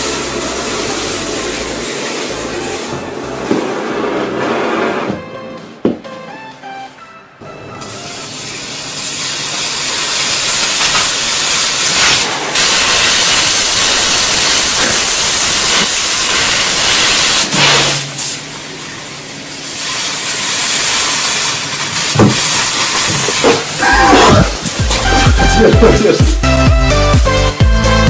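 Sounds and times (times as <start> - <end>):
soda hissing out of a plastic bottle: 0.0 - 2.9, 7.9 - 18.6, 19.4 - 26.2
soda foaming and spraying: 0.0 - 3.9, 7.8 - 26.3.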